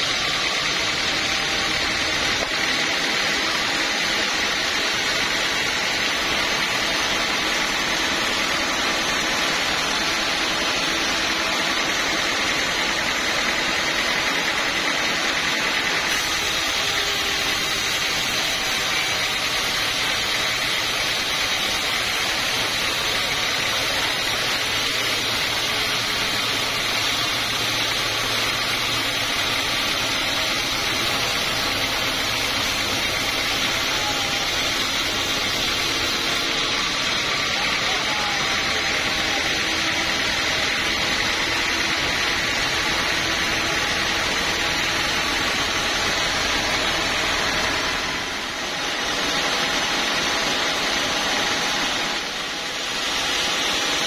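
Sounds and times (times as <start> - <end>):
band saw sawing through log: 0.0 - 54.0.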